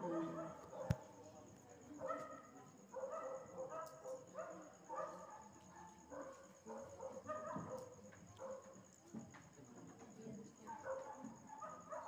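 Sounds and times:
dog barking faintly: 0.0 - 1.2, 2.0 - 8.8, 10.6 - 12.0.

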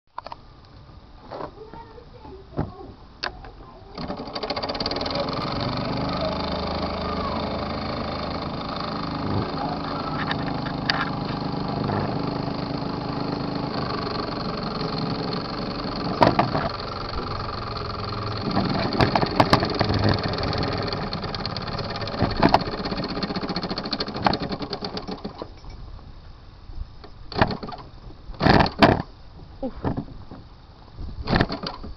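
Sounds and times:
model steam engine running: 4.0 - 25.5.

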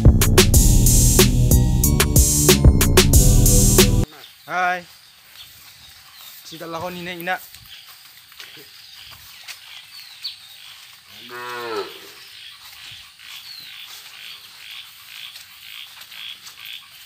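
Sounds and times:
cow mooing: 11.2 - 12.2.

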